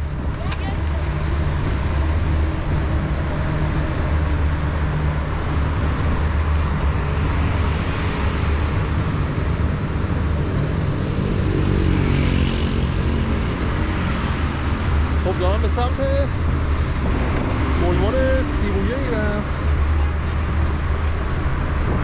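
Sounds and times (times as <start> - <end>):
motorcycle passing: 0.0 - 22.0
rumble of passing cars: 0.0 - 22.0.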